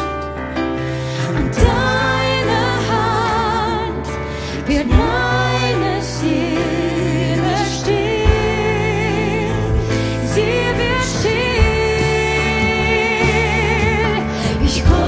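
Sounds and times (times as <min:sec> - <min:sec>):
band accompaniment: 0:00.0 - 0:15.0
woman singing with vibrato: 0:10.2 - 0:15.0.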